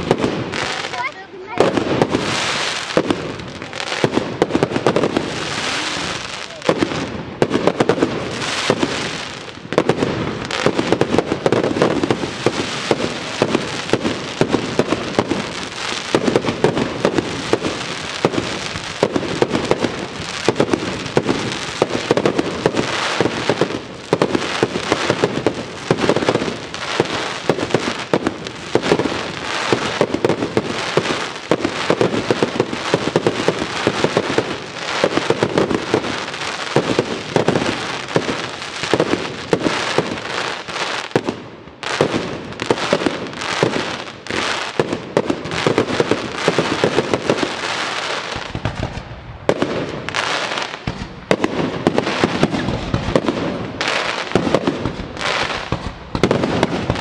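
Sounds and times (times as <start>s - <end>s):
fireworks bursting and crackling: 0.0s - 57.0s.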